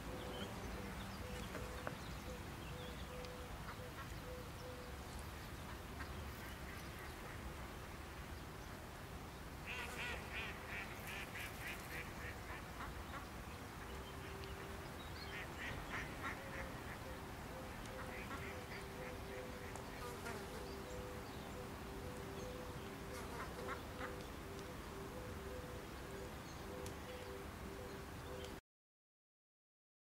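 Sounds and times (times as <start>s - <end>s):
bird quacking calls: 9.7s - 13.2s, 15.3s - 20.2s, 23.1s - 24.2s
faint steady tones: 10.3s - 28.6s.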